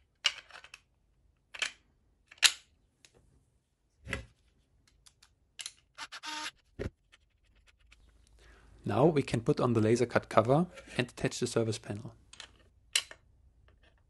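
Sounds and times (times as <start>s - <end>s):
cordless screwdriver buzz: 6.0s - 6.6s.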